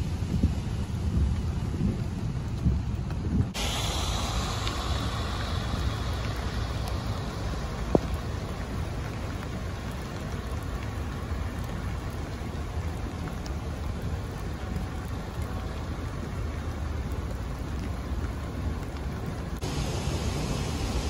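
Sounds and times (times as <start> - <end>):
low rumble: 0.0 - 11.7
steady rain falling: 0.0 - 21.0.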